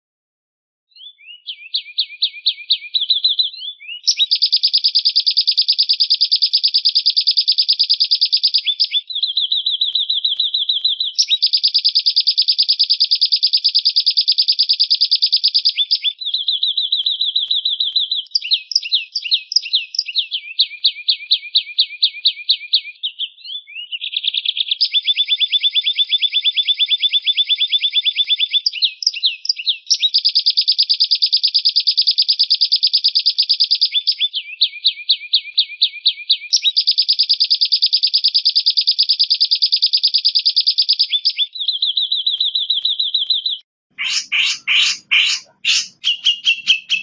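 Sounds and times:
bird chattering trills: 0:44.0 - 0:47.0.

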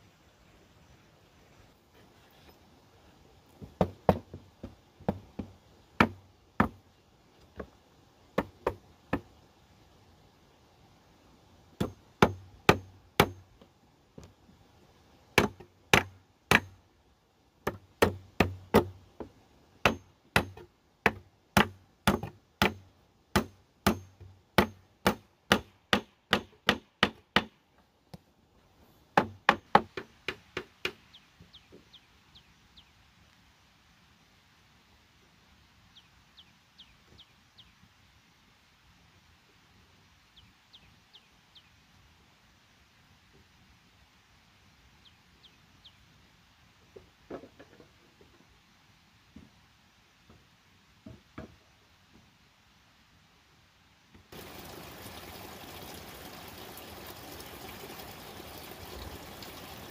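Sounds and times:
hammer striking nails into wood: 0:19.8 - 0:22.8, 0:23.4 - 0:27.6.

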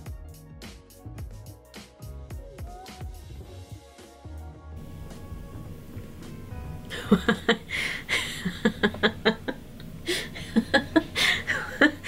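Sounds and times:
woman laughing: 0:06.9 - 0:12.0.

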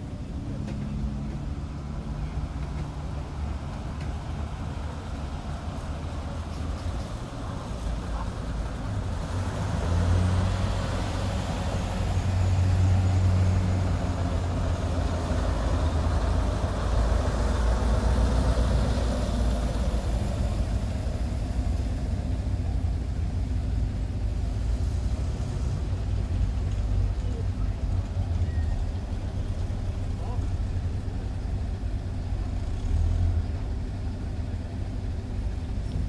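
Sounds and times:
tracked vehicle engine droning: 0:00.0 - 0:36.0.

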